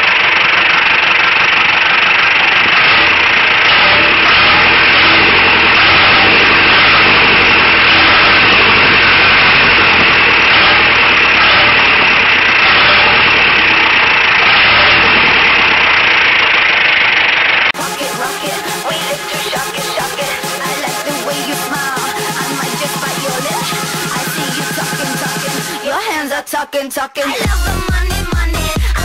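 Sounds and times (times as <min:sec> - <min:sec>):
tractor diesel engine running: 0:00.0 - 0:26.4
music: 0:17.8 - 0:26.3, 0:27.3 - 0:29.0.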